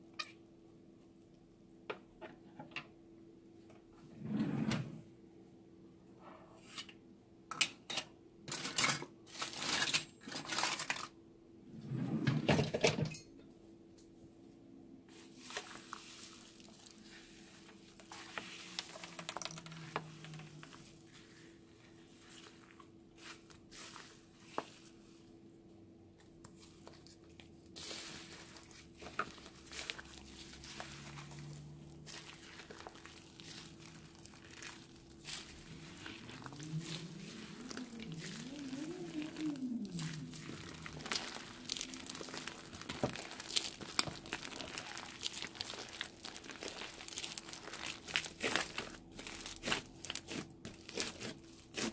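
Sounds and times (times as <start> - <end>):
foam beads crinkling and crackling: 8.5 - 11.1, 15.2 - 24.3, 26.8 - 51.9
spatula stirring slime in glass dish: 15.1 - 24.9, 26.5 - 51.9
slime squeezed by hand: 29.4 - 51.9.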